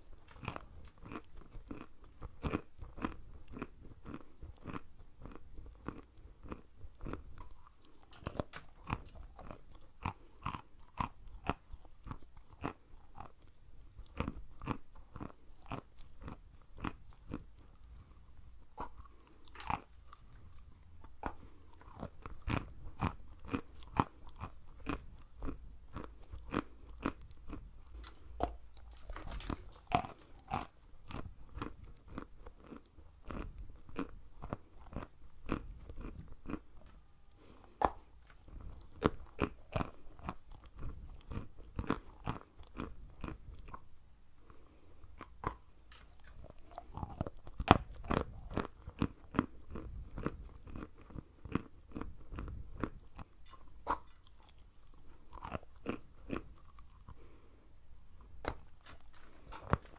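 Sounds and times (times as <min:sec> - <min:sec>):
crunchy chewing: 0:00.0 - 0:59.9.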